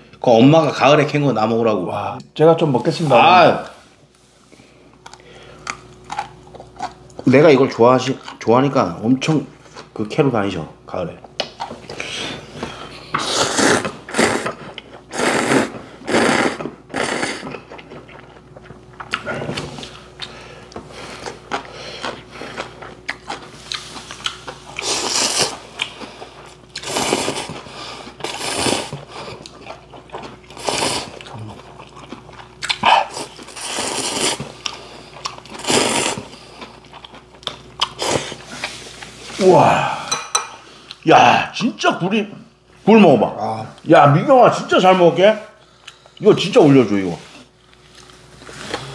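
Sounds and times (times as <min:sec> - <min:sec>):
chewing: 0:05.0 - 0:07.3, 0:16.2 - 0:39.2
noodles being slurped: 0:13.2 - 0:17.7, 0:23.3 - 0:26.0, 0:26.8 - 0:29.6, 0:30.5 - 0:31.8, 0:32.6 - 0:36.9.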